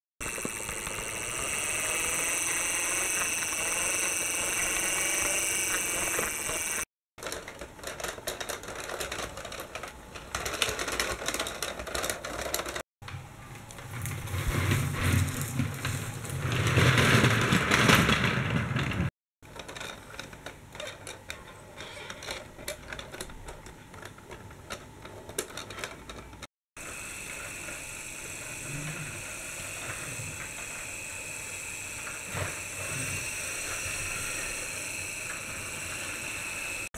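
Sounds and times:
toy tram motors whirring: 0.2 - 12.8, 13.8 - 36.9.

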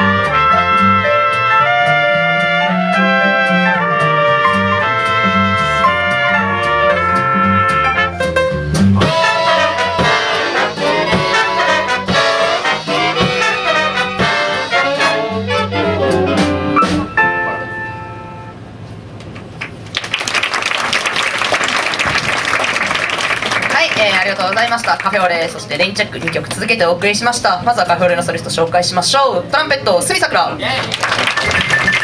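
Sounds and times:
jazz big band playing: 0.0 - 19.1, 21.4 - 29.5, 31.0 - 32.0
audience applause: 19.6 - 25.5, 30.7 - 32.0.

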